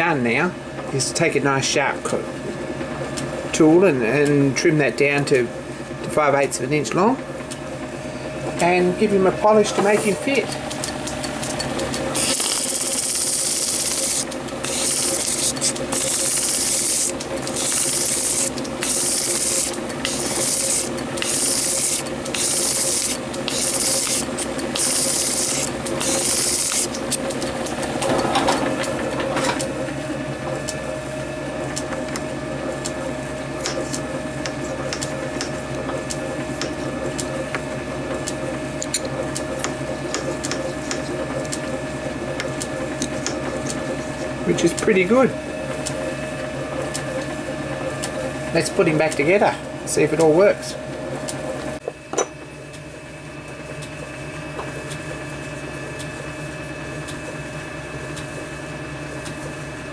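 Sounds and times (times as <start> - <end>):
lathe machine hum: 0.5 - 59.9
polishing stick rubbing metal: 12.2 - 27.0.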